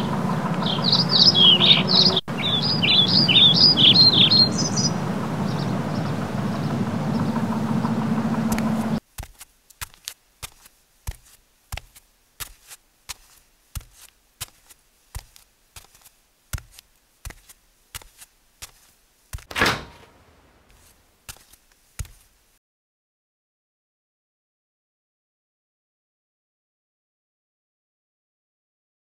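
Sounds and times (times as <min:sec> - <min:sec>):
boot footsteps on hard floor: 0:09.2 - 0:19.6, 0:20.7 - 0:22.3
refrigerator door pulled open: 0:19.4 - 0:20.3.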